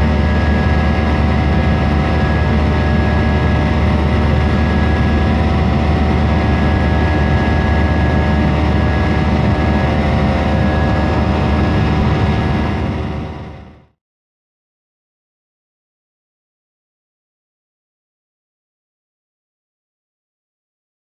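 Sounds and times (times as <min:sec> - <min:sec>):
high whining engine tones: 0:00.0 - 0:13.9
jet engine rush and drone: 0:00.0 - 0:14.0.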